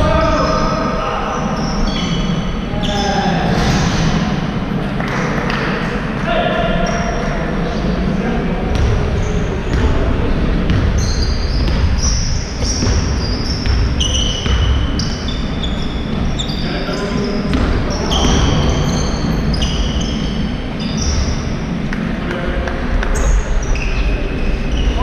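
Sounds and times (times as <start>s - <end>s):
ball bouncing: 8.7s - 15.4s, 17.5s - 20.1s
shoes squeaking on court floor: 10.7s - 21.9s, 23.0s - 25.0s.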